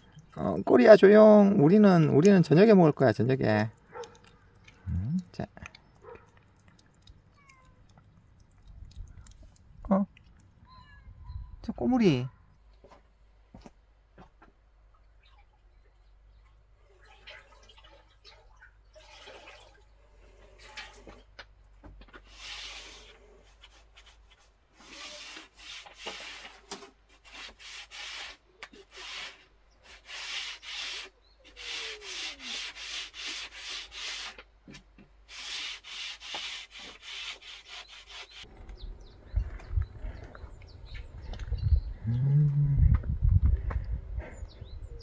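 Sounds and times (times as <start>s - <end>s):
brush sweeping hard floor: 22.2s - 34.4s, 35.3s - 38.5s.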